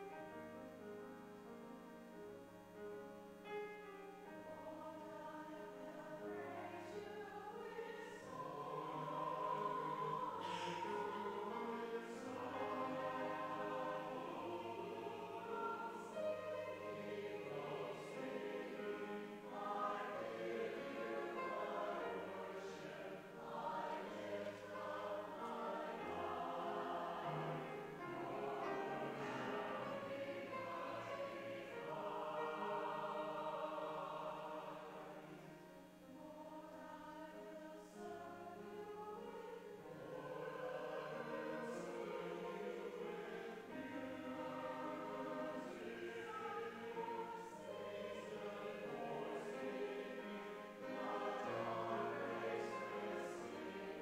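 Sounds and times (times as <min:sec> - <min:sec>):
choir singing in harmony: 0:02.1 - 0:54.0.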